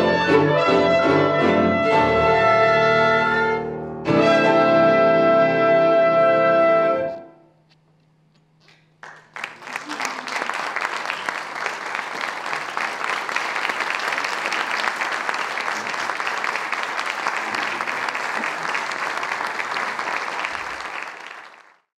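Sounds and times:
audience applauding: 0:08.7 - 0:21.9.

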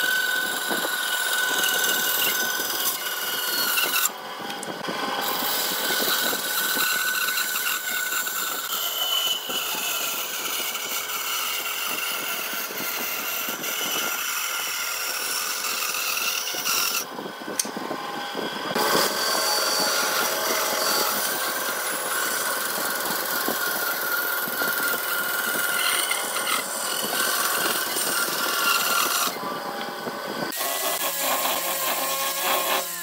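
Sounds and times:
band saw cutting wood: 0:00.0 - 0:33.0.

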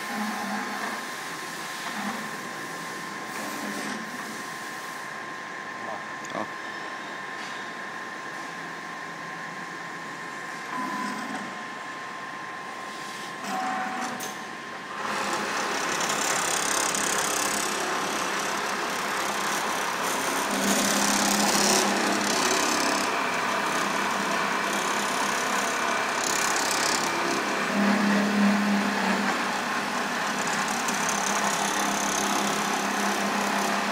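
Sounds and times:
sewing machine running: 0:14.9 - 0:33.9.

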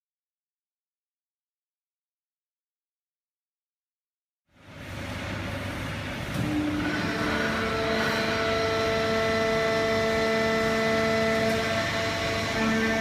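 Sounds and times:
baler machine hum: 0:04.5 - 0:13.0.

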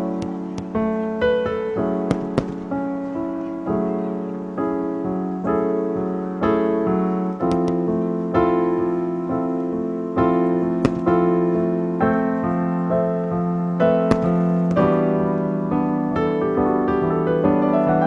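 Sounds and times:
gentle solo piano music: 0:00.0 - 0:18.0
sharp clicks: 0:07.4 - 0:07.8.

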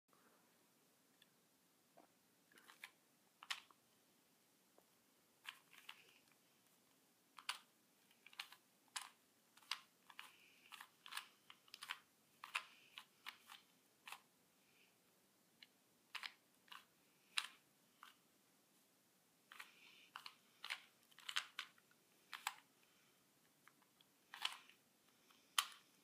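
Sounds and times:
puzzle cube clicking: 0:02.6 - 0:03.8, 0:05.4 - 0:06.2, 0:07.3 - 0:14.3, 0:15.6 - 0:18.2, 0:19.5 - 0:22.7, 0:23.6 - 0:24.8, 0:25.4 - 0:25.9.

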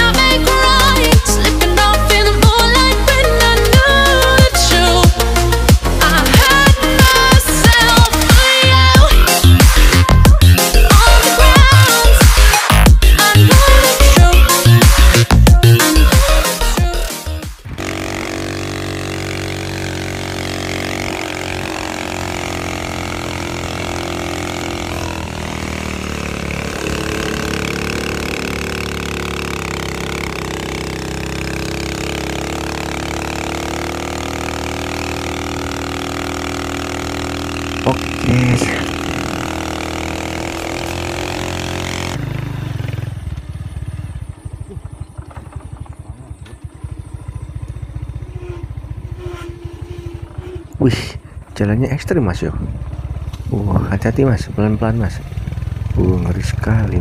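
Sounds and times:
motorcycle engine running: 0:00.0 - 0:57.0
wind and road noise: 0:36.7 - 0:56.1.

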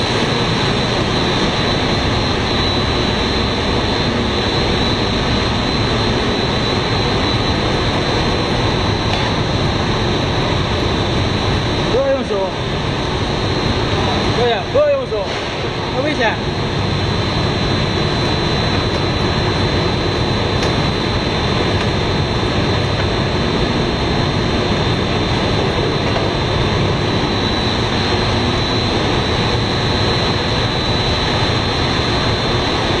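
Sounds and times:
faint high whine: 0:00.0 - 0:33.0
production-line machinery running: 0:00.0 - 0:33.0.

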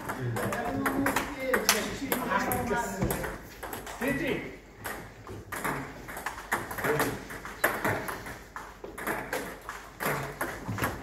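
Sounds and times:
ping pong ball clicking: 0:04.8 - 0:08.3.

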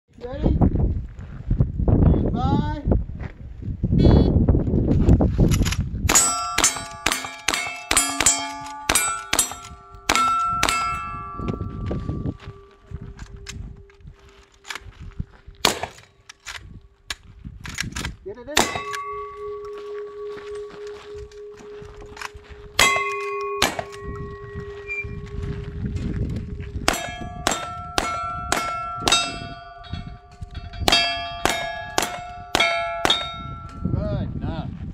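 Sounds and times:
steel plate target clanging: 0:06.1 - 0:12.9, 0:18.6 - 0:20.8, 0:22.1 - 0:25.2, 0:26.8 - 0:33.9
rifle shots: 0:15.6 - 0:16.1, 0:18.6 - 0:19.3, 0:22.8 - 0:24.1.

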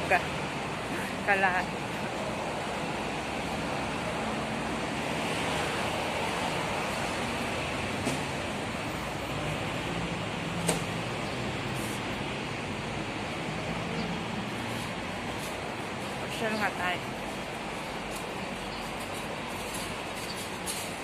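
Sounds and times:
city road traffic: 0:00.0 - 0:21.0.

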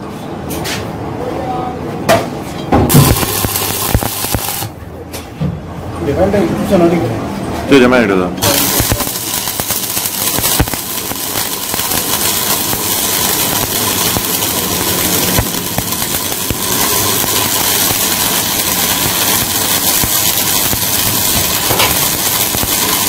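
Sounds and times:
welding arc crackling: 0:02.9 - 0:04.8, 0:08.4 - 0:23.0
welding arc pops: 0:02.9 - 0:04.8, 0:08.4 - 0:23.0.

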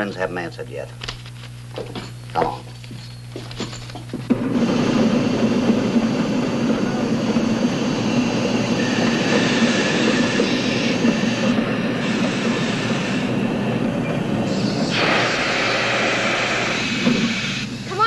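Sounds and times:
train wheels clattering on rails: 0:03.4 - 0:18.0.

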